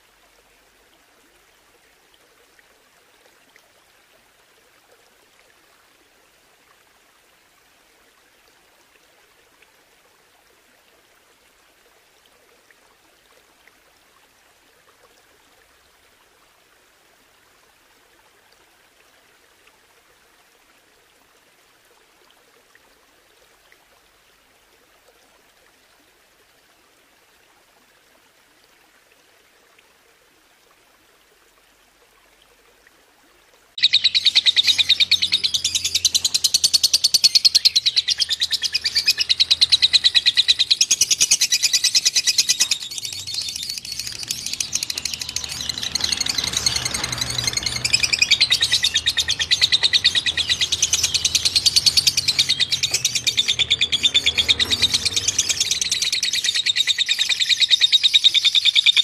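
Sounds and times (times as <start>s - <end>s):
faint flowing water: 0.0s - 59.0s
songbird high-pitched trill: 33.8s - 59.0s.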